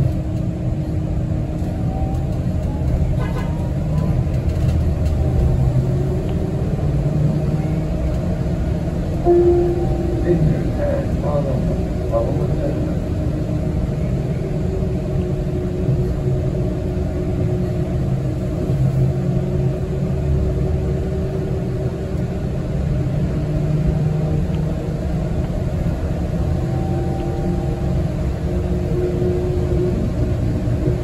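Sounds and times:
bus engine rumble: 0:00.0 - 0:31.0.

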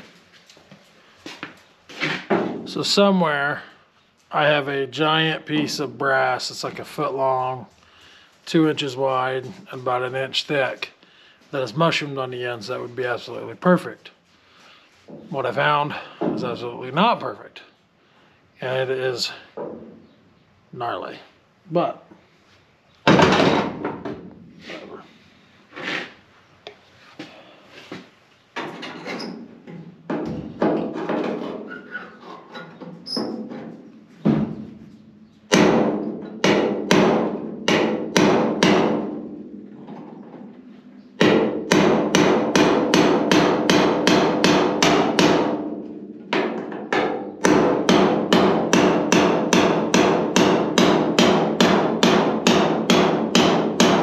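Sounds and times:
hammer striking a chisel on metal: 0:41.2 - 0:45.5, 0:46.9 - 0:54.0.

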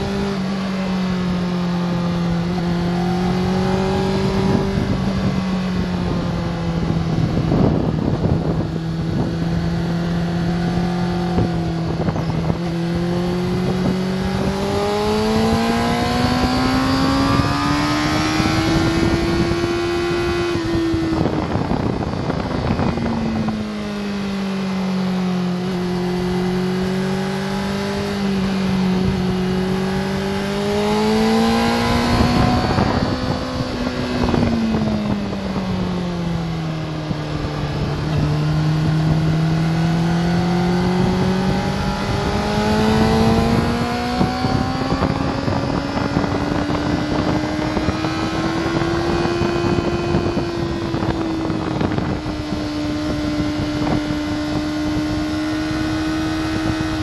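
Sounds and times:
motorcycle engine: 0:00.0 - 0:57.0
wind rushing: 0:25.6 - 0:57.0.

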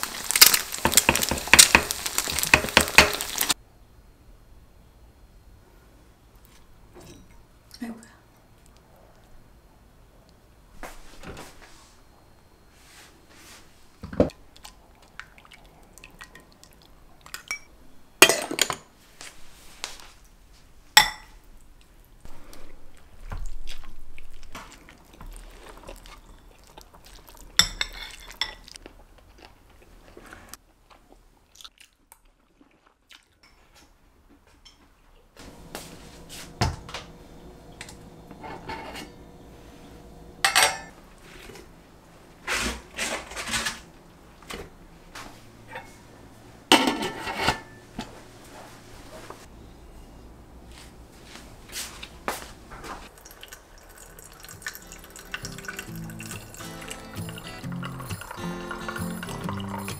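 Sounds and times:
utensils clinking on ceramic bowls: 0:17.3 - 0:18.9, 0:27.6 - 0:28.7, 0:40.5 - 0:40.9, 0:53.9 - 0:59.9
steady low hum: 0:35.4 - 0:53.1.

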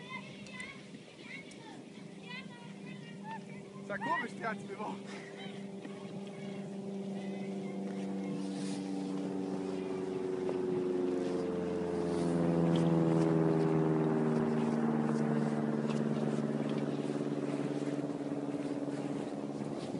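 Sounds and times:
motor drone passing by: 0:00.0 - 0:19.9.

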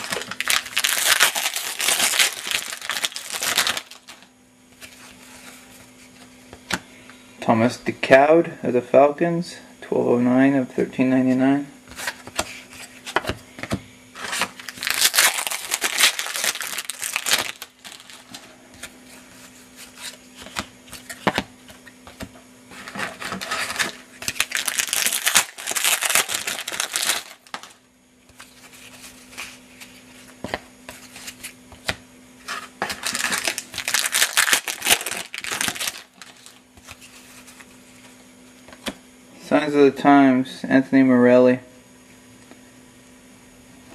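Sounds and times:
wrappers crinkling and tearing: 0:00.0 - 0:04.2, 0:14.2 - 0:18.5, 0:23.3 - 0:27.8, 0:32.8 - 0:37.6.

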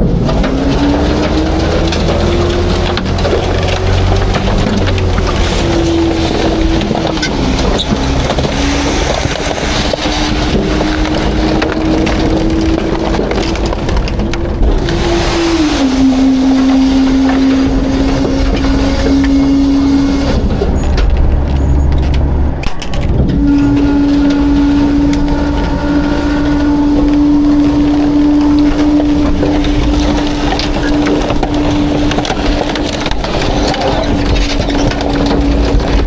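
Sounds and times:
debris cracking and crunching: 0:00.0 - 0:36.0
truck engine and hydraulics droning: 0:00.0 - 0:36.0.

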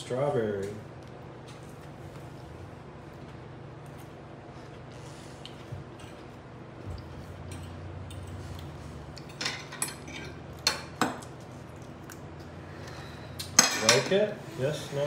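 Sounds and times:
forks clinking on plates: 0:07.4 - 0:08.6, 0:09.2 - 0:11.3, 0:13.6 - 0:14.2.

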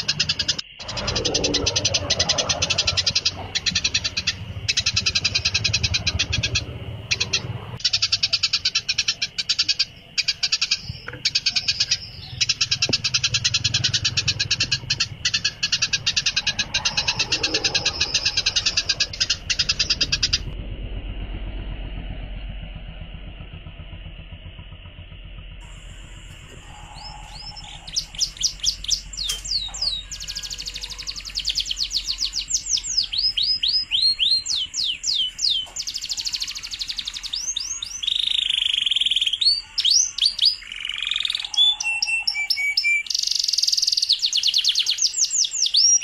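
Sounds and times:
songbird chips and trills: 0:00.0 - 0:20.6, 0:25.7 - 0:46.0.

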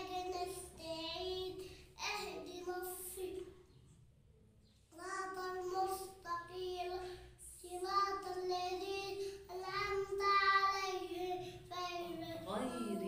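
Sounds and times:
boy singing: 0:07.6 - 0:13.0.

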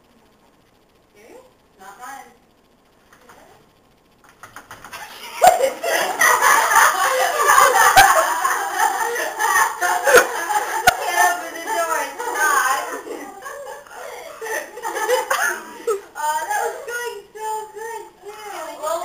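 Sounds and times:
people laughing loudly: 0:04.9 - 0:17.6.

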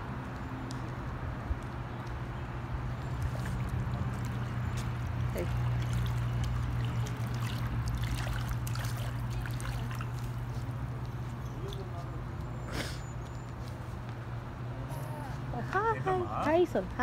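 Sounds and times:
low pump hum: 0:01.0 - 0:12.7
hot tub jets churning water: 0:02.5 - 0:12.5
small water splashes: 0:02.9 - 0:11.9.

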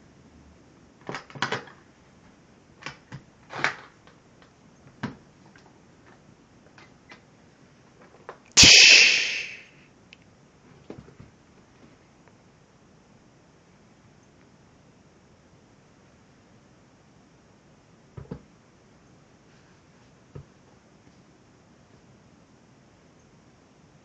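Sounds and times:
sudden noisy rush: 0:08.6 - 0:09.8.

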